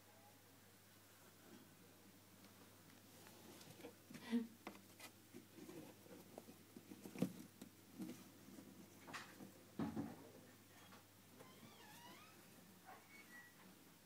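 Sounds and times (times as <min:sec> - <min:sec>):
kittens' paws scrabbling on cardboard: 0:04.7 - 0:08.5.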